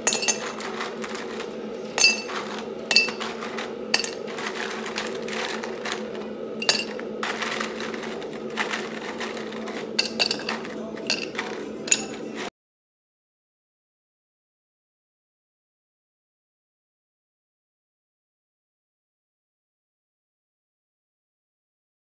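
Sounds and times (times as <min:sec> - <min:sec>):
dishes and cutlery clinking: 0:00.0 - 0:12.5
steady low hum: 0:00.0 - 0:12.5.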